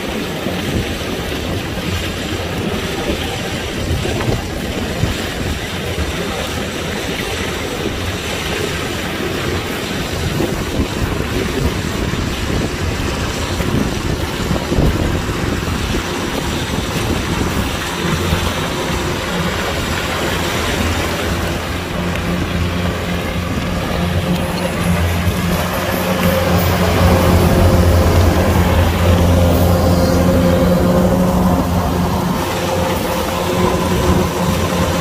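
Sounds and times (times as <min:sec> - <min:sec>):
combine harvester running: 0:11.2 - 0:35.0.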